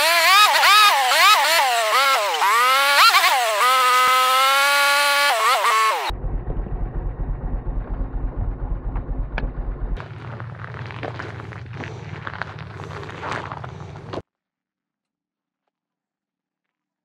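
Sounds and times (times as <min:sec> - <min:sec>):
sped-up engine whine: 0:00.0 - 0:14.2
low pulsing engine rumble: 0:06.1 - 0:14.2.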